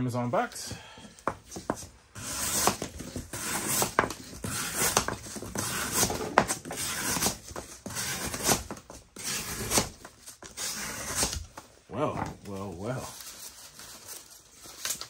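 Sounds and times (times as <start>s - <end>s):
knife cutting cardboard: 1.5s - 11.6s.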